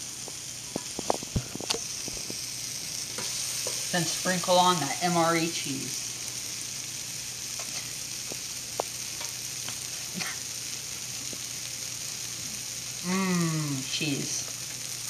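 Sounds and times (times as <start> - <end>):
food sizzling on griddle: 0.0 - 15.0.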